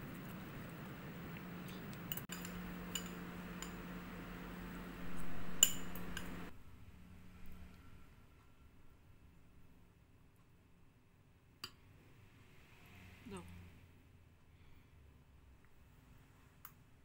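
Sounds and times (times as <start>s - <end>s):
steady low hum: 0.0s - 11.5s
cutlery clinking on ceramic bowls: 2.0s - 3.9s.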